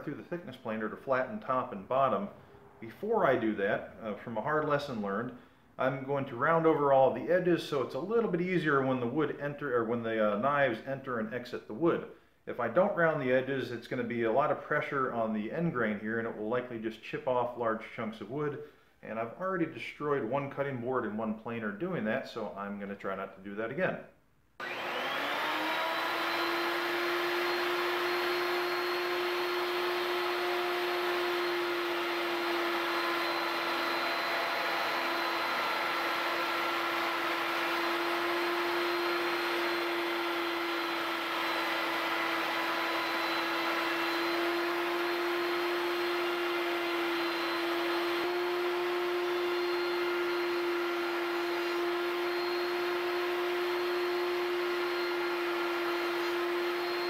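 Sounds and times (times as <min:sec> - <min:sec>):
router whining: 0:24.6 - 0:57.0.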